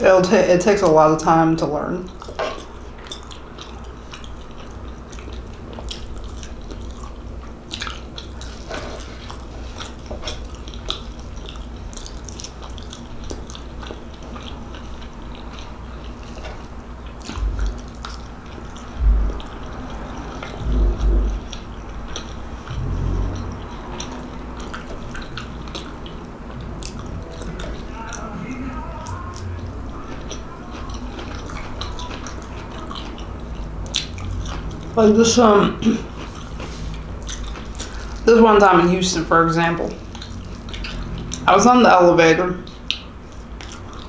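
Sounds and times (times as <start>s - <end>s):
close chewing with mouth clicks: 2.0s - 38.9s, 39.8s - 41.6s, 42.6s - 44.0s
low thumps: 19.0s - 19.6s, 20.4s - 24.8s.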